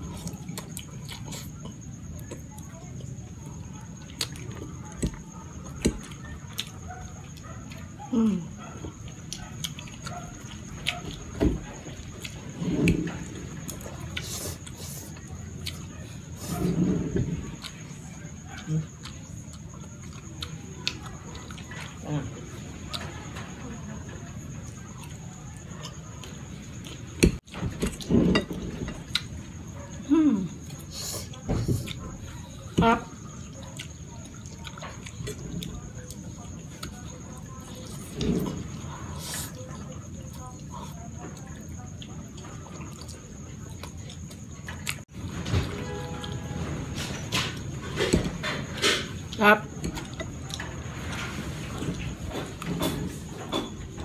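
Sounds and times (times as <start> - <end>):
wet chewing: 0.0 - 16.7, 30.6 - 45.1.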